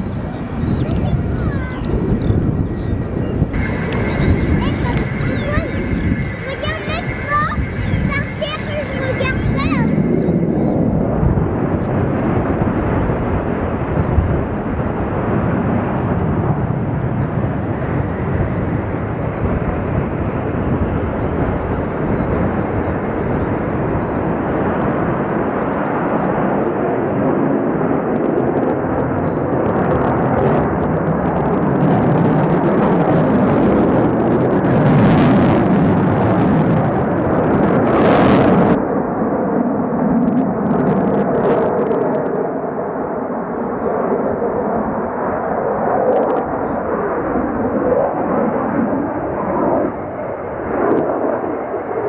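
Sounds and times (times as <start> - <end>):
jet engines roaring: 0.0 - 52.0.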